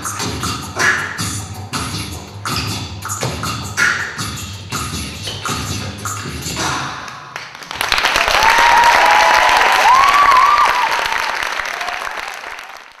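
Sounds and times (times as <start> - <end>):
beatboxed rhythm: 0.0 - 7.6
audience applauding and cheering: 7.3 - 13.0
whoops: 8.1 - 12.7.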